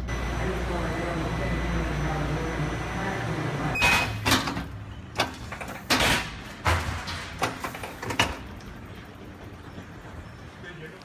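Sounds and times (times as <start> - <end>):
fare gate beep: 3.7 - 4.3.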